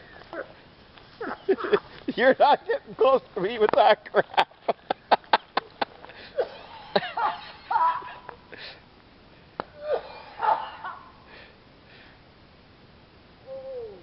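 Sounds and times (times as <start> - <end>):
man coughing and groaning: 6.3 - 8.3, 9.8 - 11.0.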